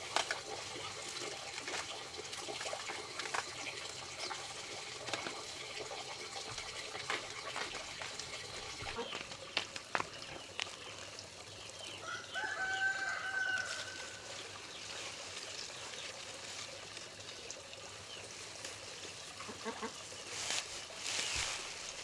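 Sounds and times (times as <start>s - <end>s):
rooster crowing: 12.0s - 14.2s.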